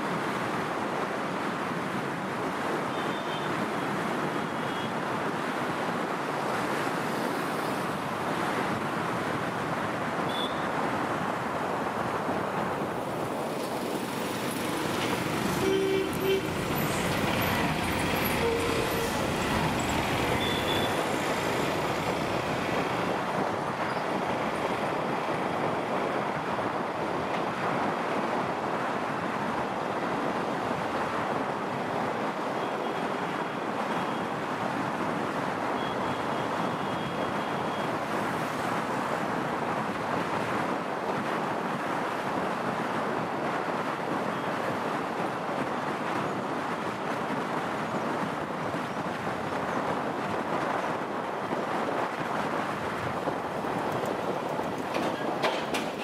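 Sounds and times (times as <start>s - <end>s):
motorcycle road noise: 0.1s - 28.6s, 42.2s - 56.0s
wind blowing on microphone: 38.1s - 56.0s.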